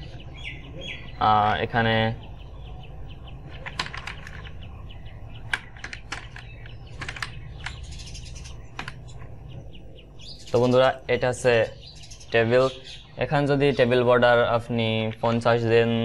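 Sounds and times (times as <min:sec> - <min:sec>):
keyboard keys clicking: 0:03.5 - 0:04.7, 0:05.3 - 0:07.9.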